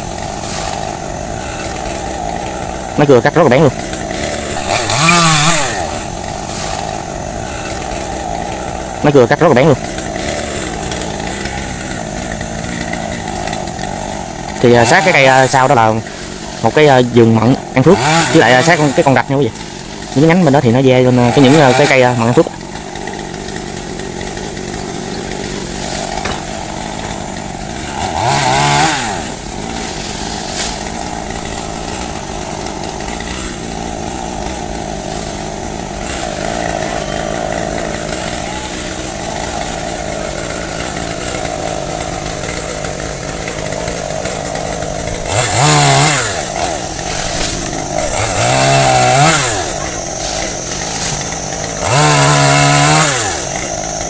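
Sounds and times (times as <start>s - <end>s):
chainsaw engine revving: 0.0s - 54.0s.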